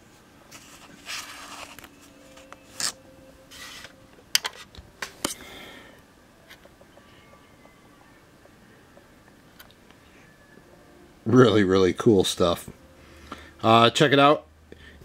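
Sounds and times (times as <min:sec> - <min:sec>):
soft rubbing: 0:00.0 - 0:04.0.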